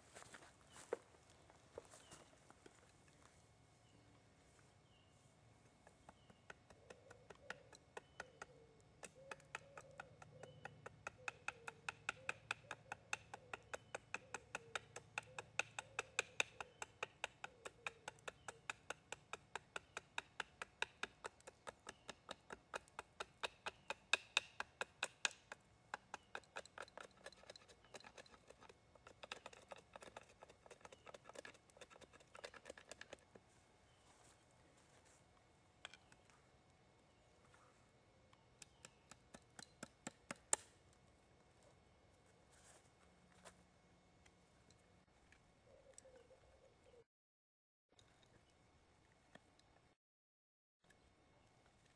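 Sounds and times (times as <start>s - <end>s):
knife carving wood: 5.9s - 33.3s, 38.6s - 40.7s.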